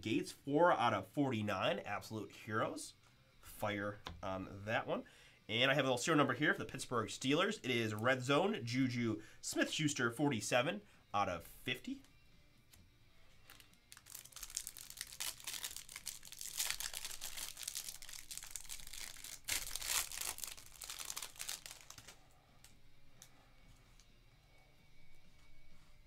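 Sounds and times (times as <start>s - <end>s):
plastic wrapper crinkling and tearing: 13.4s - 22.8s.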